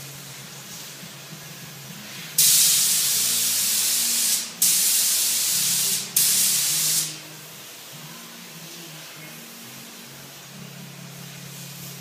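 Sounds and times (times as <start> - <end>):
spray gun hissing: 2.1 - 7.2.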